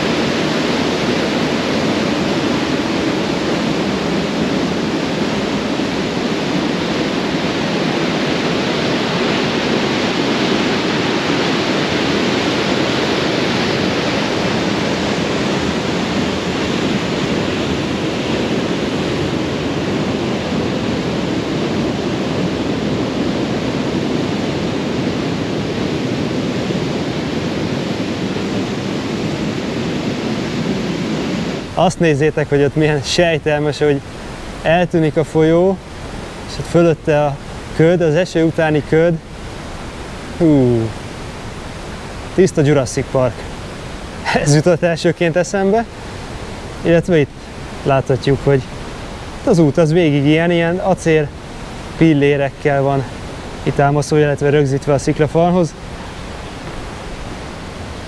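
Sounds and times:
water rushing over rocks: 0:31.3 - 0:58.0.

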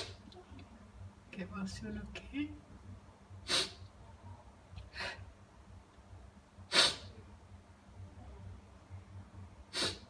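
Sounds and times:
sharp nasal breaths: 0:03.4 - 0:03.8, 0:06.7 - 0:07.1, 0:09.7 - 0:10.0.

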